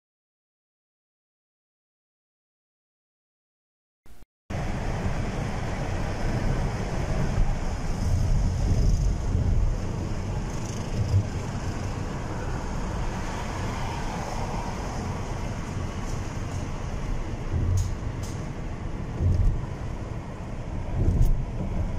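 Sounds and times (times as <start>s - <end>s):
car driving on road: 4.5s - 21.9s.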